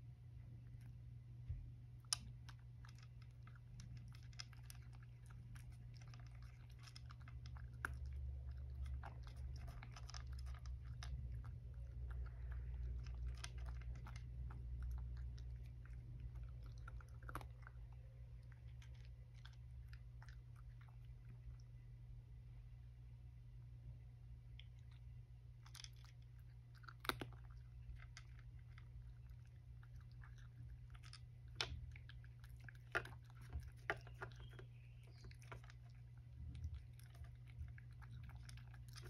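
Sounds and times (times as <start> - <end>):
low steady hum: 0.0 - 39.0
cat crunching dry kibble: 1.9 - 21.7, 24.6 - 39.0.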